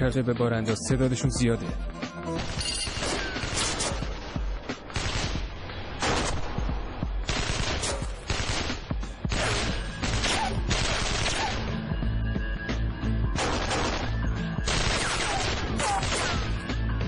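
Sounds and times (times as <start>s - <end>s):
rapid gunfire volleys: 2.4s - 11.8s, 13.4s - 16.7s.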